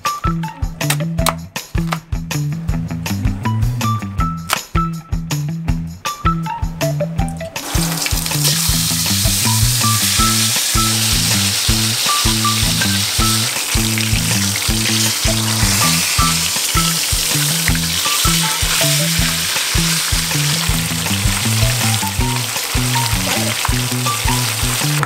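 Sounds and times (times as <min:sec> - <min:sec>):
background music with beat: 0:00.0 - 0:25.0
fish sizzling in hot oil: 0:07.6 - 0:25.0.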